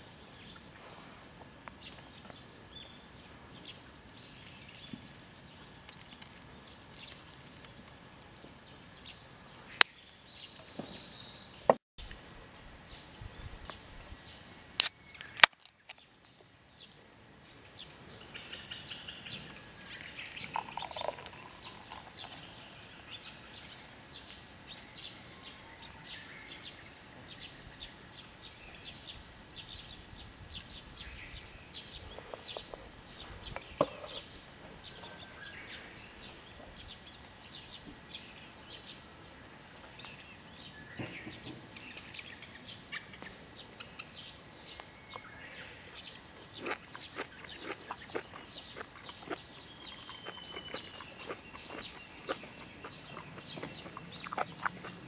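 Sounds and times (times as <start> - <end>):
birds chirping: 0.0 - 55.0
beer pouring into glass: 20.2 - 22.4.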